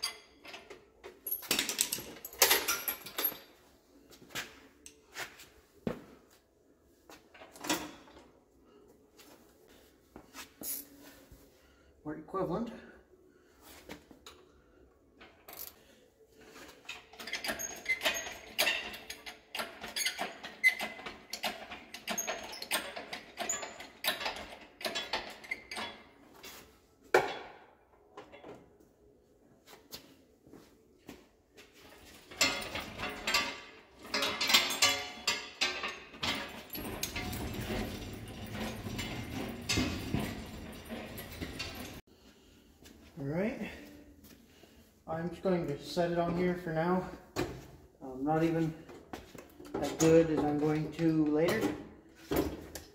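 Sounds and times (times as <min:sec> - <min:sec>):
hoist rattling and scraping: 0:16.5 - 0:26.6, 0:31.8 - 0:42.1
hydraulic hoist clicking and clanking: 0:16.9 - 0:26.0, 0:32.1 - 0:42.0.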